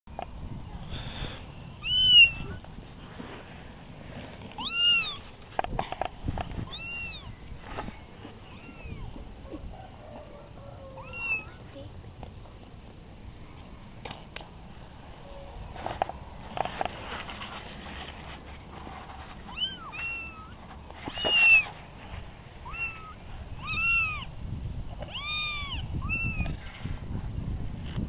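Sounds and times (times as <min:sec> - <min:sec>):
kittens meowing: 0:01.8 - 0:02.6, 0:04.6 - 0:05.2, 0:06.6 - 0:07.4, 0:08.4 - 0:09.2, 0:10.8 - 0:11.7, 0:19.5 - 0:21.8, 0:22.6 - 0:24.3, 0:25.0 - 0:26.6.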